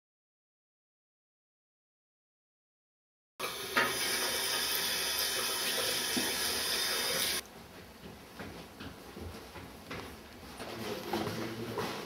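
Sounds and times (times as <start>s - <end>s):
tap water running into sink: 3.4s - 7.4s.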